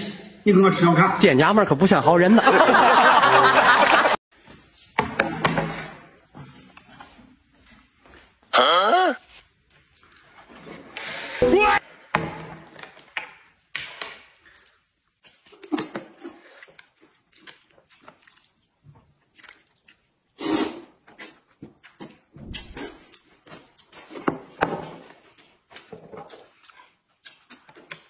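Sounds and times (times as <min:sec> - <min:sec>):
man slurping noodles: 0:20.3 - 0:23.2.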